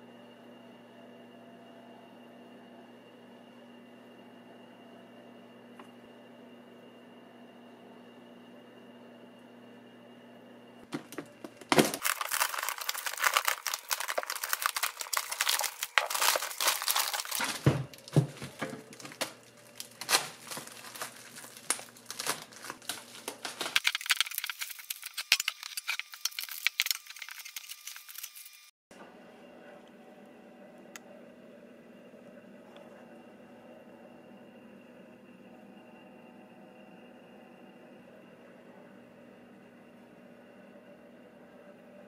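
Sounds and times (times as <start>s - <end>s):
bubble wrap crinkling and tearing: 11.5s - 28.7s.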